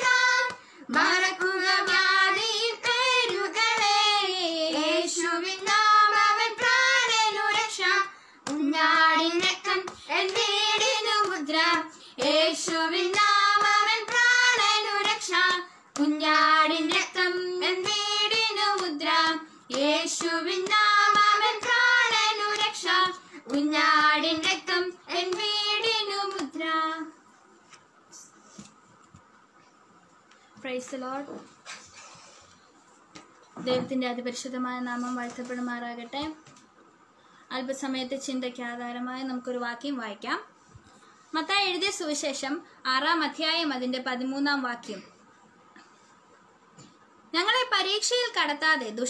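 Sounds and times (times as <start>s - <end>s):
girls singing a worship song: 0.0s - 27.2s.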